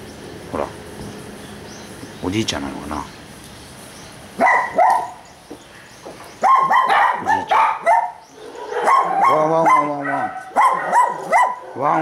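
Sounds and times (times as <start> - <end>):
dog barking: 4.4 - 5.2, 6.4 - 12.0.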